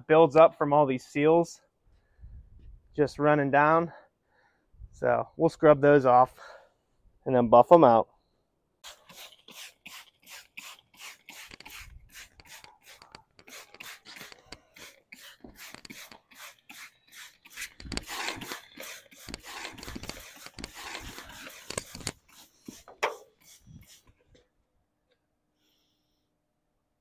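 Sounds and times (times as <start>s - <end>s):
scrubbing on truck body: 8.8s - 24.1s.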